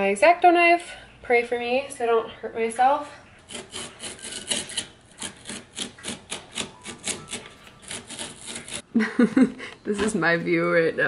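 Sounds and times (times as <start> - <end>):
craft knife sawing through fabric: 3.4 - 8.8.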